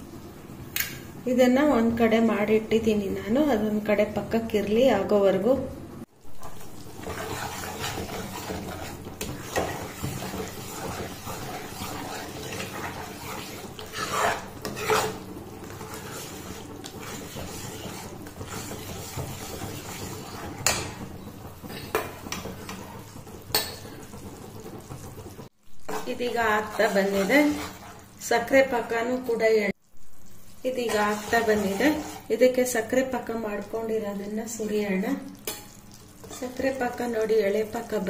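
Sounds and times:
metal ladle scraping pan: 6.3s - 28.2s, 30.7s - 32.5s, 35.3s - 38.0s.

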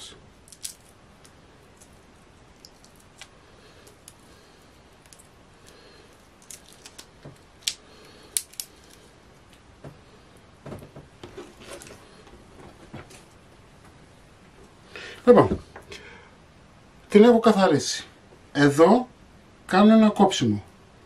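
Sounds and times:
shrimp shell cracking: 0.4s - 1.9s, 2.6s - 4.3s, 4.9s - 9.0s
knocks and rustles on cutting board: 10.6s - 11.9s.

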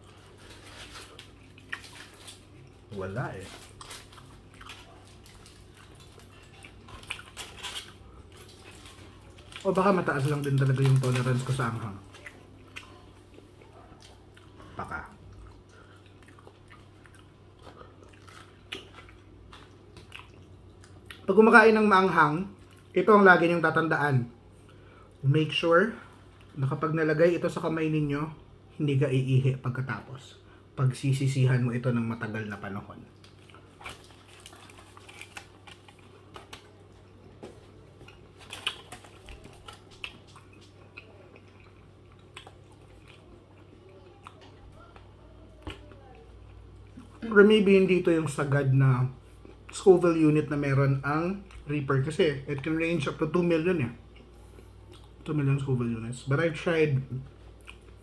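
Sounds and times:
foil wrap crinkling: 0.0s - 12.3s, 33.2s - 40.9s
person chewing food: 0.0s - 21.3s, 33.1s - 47.2s, 54.0s - 55.3s, 57.3s - 58.0s
low steady hum: 0.0s - 58.0s.

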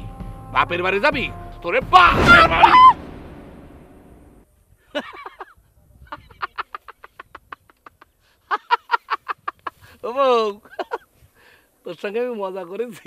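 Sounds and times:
man laughing heartily: 4.9s - 10.0s, 10.6s - 11.1s.

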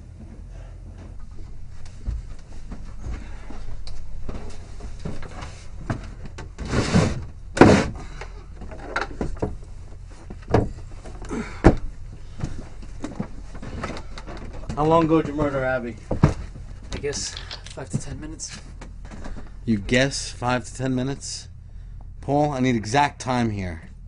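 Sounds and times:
footsteps on wooden stairs: 0.1s - 6.6s, 7.7s - 19.6s
wooden door scraping open: 5.3s - 9.3s.

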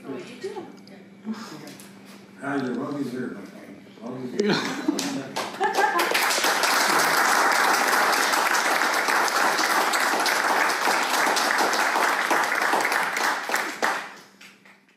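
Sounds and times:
audience applauding: 5.0s - 14.3s.

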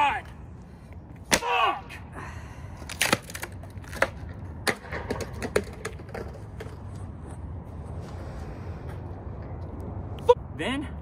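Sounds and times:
skateboard cracking against concrete: 2.8s - 7.0s.

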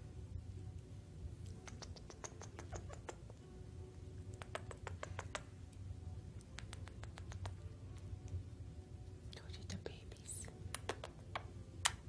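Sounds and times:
faint low hum: 0.0s - 12.0s
wet kissing smacks: 1.4s - 3.3s, 4.4s - 5.5s, 6.5s - 7.6s, 10.7s - 12.0s.

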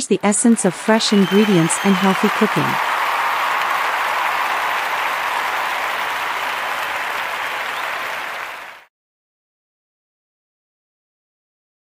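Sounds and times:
crowd applauding: 0.2s - 8.9s.

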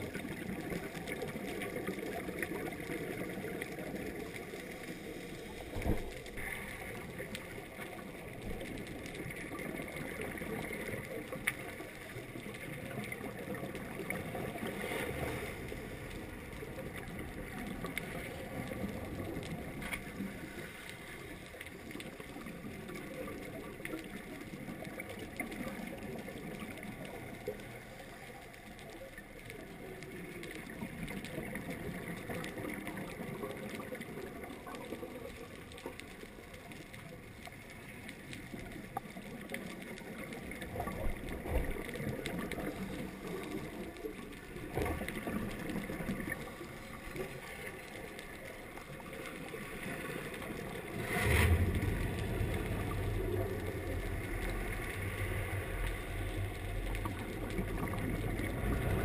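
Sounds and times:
muffled underwater rush of water: 0.0s - 59.0s.

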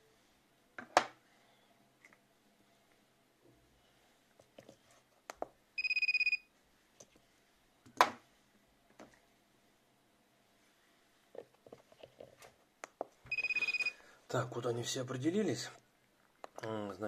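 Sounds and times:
pulsing electronic beep: 13.3s - 13.9s.

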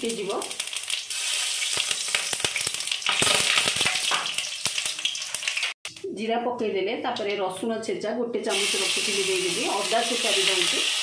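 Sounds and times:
seeds sizzling in hot oil: 0.0s - 5.8s, 8.5s - 11.0s.

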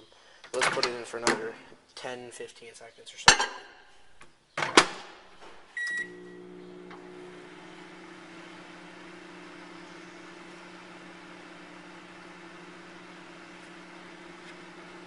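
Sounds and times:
microwave oven humming: 5.8s - 15.0s.

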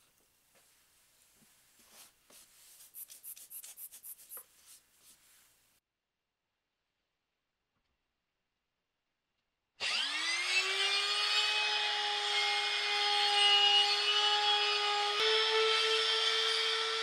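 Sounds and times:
router high whine: 9.8s - 14.6s.

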